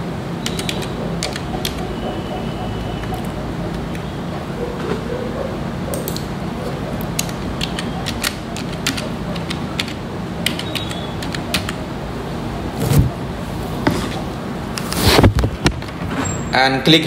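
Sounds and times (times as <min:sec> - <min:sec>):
background hiss and hum: 0:00.0 - 0:17.0
keyboard typing: 0:00.4 - 0:04.1, 0:06.9 - 0:11.9.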